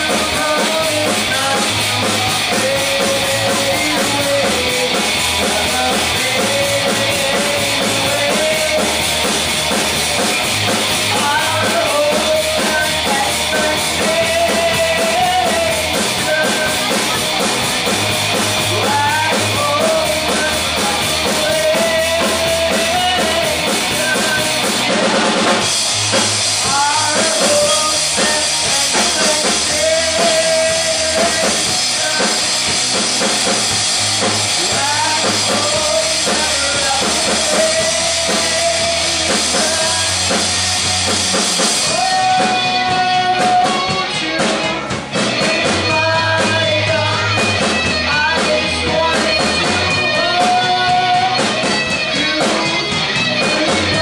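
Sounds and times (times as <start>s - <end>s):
bass line: 0.0s - 54.0s
drum kit: 0.0s - 54.0s
guitar: 0.0s - 54.0s.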